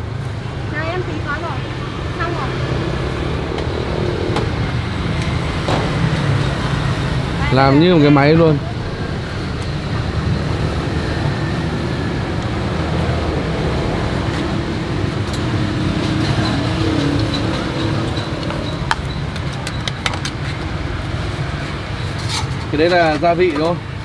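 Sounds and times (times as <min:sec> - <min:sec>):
road traffic rumble: 0:00.0 - 0:24.0
engine passing: 0:01.1 - 0:19.4.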